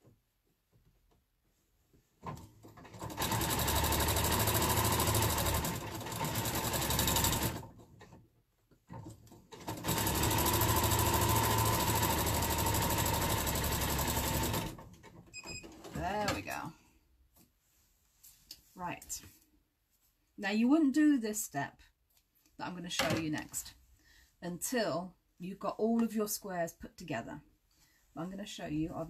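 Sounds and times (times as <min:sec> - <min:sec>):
electric sewing machine stitching: 0:02.9 - 0:07.8, 0:09.6 - 0:14.8.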